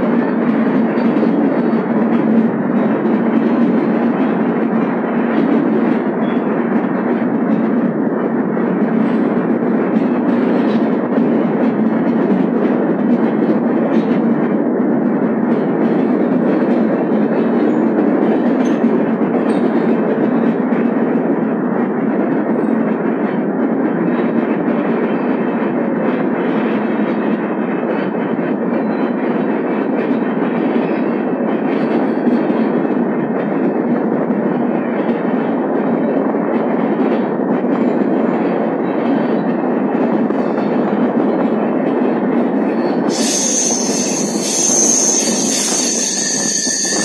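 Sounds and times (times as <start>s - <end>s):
train wheels on rail in tunnel: 0.0s - 47.0s.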